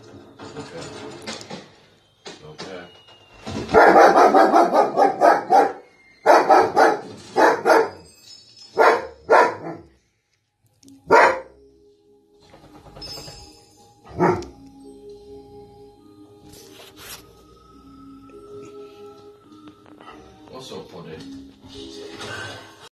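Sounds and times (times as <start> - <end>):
film music from tv: 0.0 - 22.9
dog barking: 3.7 - 8.1, 8.8 - 10.0, 11.0 - 11.6, 14.1 - 14.6.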